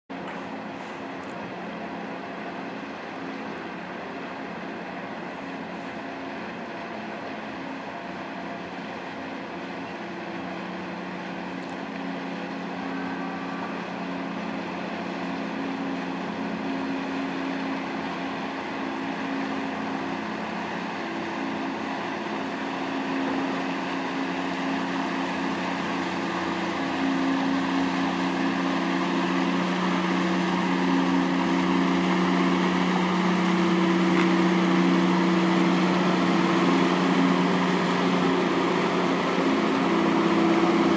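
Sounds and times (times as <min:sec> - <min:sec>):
ship engines droning: 0:00.1 - 0:40.9.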